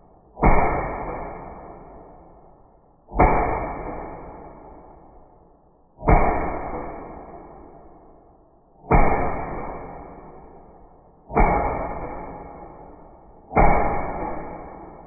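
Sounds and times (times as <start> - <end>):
airsoft gun shots: 0.4 - 1.9, 3.1 - 4.8, 6.0 - 7.6, 8.8 - 10.6, 11.3 - 15.0.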